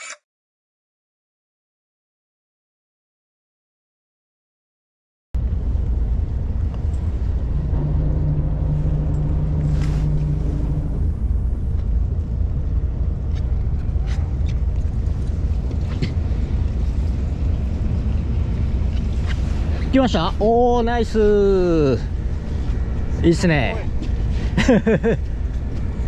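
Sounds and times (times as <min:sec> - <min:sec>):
wind on microphone: 0:05.4 - 0:20.0
boat engine rumble: 0:05.4 - 0:26.0
steady low hum: 0:05.4 - 0:26.0.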